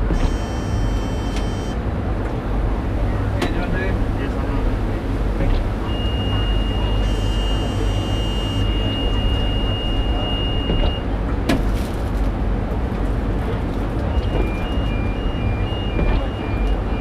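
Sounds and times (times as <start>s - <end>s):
railcar rumbling on track: 0.0s - 17.0s
two-tone electronic beeping: 0.1s - 1.8s, 5.8s - 11.1s, 14.1s - 17.0s
high electronic tone: 0.2s - 1.8s, 5.9s - 10.8s.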